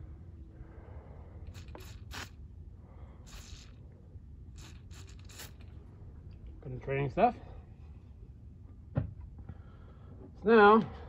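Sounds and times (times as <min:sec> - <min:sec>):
aerosol can spraying: 0:01.5 - 0:02.4, 0:03.3 - 0:03.8, 0:04.6 - 0:05.7.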